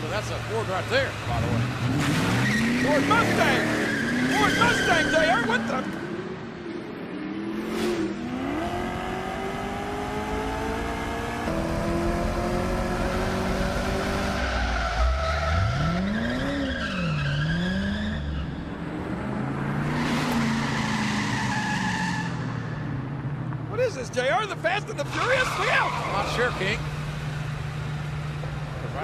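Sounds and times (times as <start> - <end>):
car engine accelerating: 0.0 - 29.0
tyres squealing: 2.1 - 5.9, 24.0 - 26.8.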